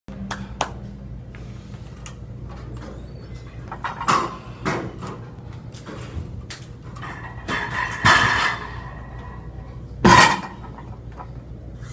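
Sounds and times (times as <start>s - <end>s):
steady low hum: 0.1s - 11.9s
hand claps: 0.2s - 0.9s.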